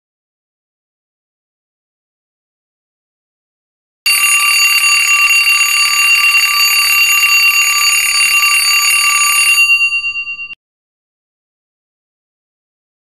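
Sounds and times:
alarm bell ringing: 4.1s - 10.6s.

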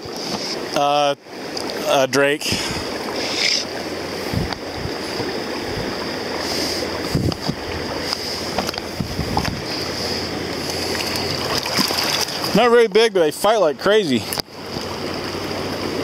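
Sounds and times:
river flowing over rocks: 0.0s - 16.0s
wind buffeting microphone: 2.4s - 3.1s, 4.0s - 6.3s, 6.9s - 12.7s.

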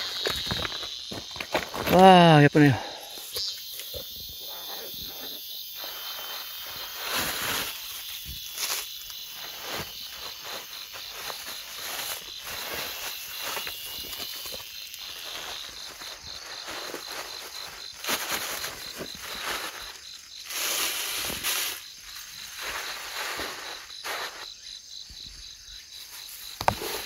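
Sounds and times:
plants rustling: 0.0s - 24.9s
footsteps through undergrowth: 0.0s - 27.0s
insects trilling: 0.0s - 27.0s.

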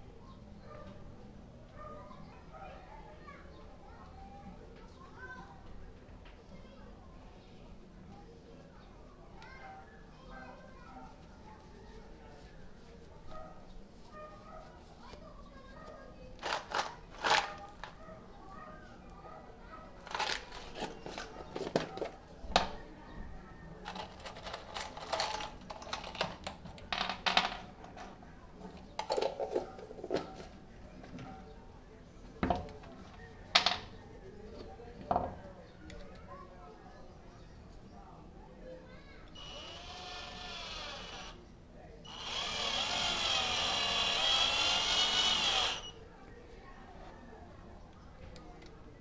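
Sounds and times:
screws rattling onto wooden board: 16.4s - 18.0s, 20.1s - 22.1s, 23.9s - 27.7s, 39.4s - 41.4s, 42.1s - 45.9s
cordless drill whining: 39.4s - 41.4s, 42.1s - 46.0s.

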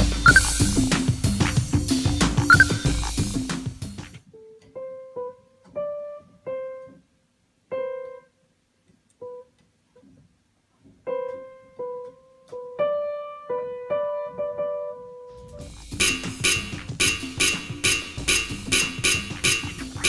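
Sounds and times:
piano notes: 4.3s - 8.4s, 10.8s - 20.0s.

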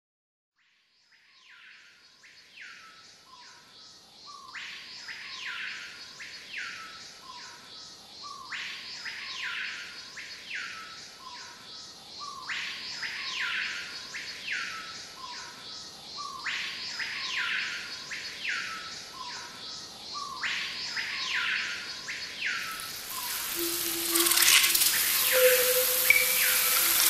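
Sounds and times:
looped electronic tune: 22.7s - 27.0s.

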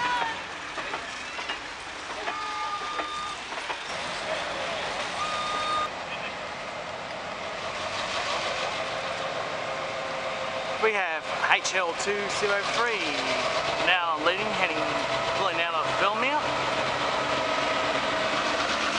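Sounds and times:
diesel locomotive engine: 0.0s - 18.9s
train wheels rolling on rails: 0.0s - 18.9s
wheel squeal: 2.2s - 4.0s, 5.1s - 5.9s.

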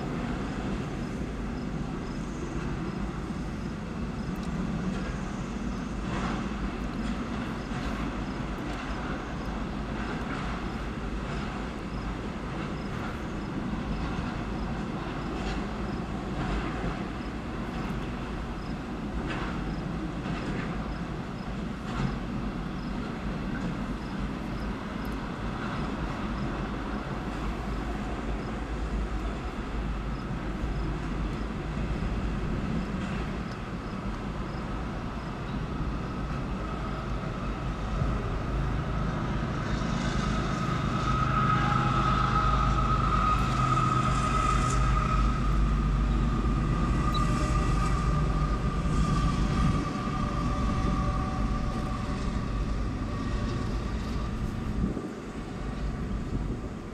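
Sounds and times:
locomotive high whine: 0.0s - 56.9s
train wheels rumbling on rail: 0.0s - 56.9s.

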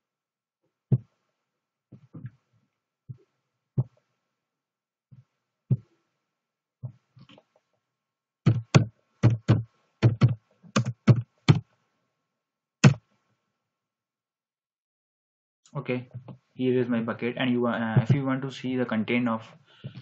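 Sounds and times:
computer keyboard keystrokes: 8.5s - 11.6s.

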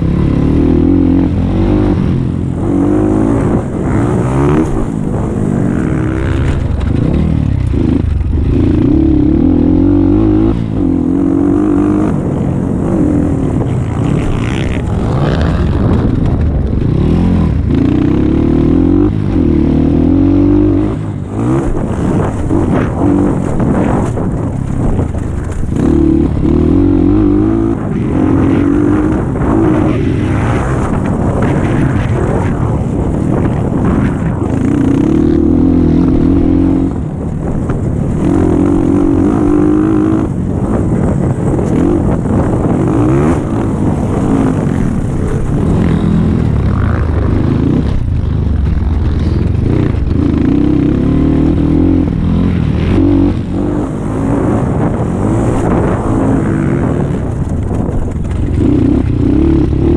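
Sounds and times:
dirt bike engine revving: 0.0s - 37.0s.

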